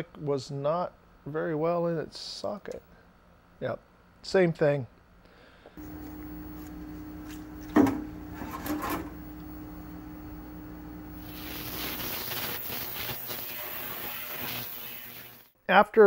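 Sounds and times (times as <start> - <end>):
ultrasonic cleaner hissing: 5.8 - 8.4, 9.0 - 15.6
low hum: 5.8 - 11.7.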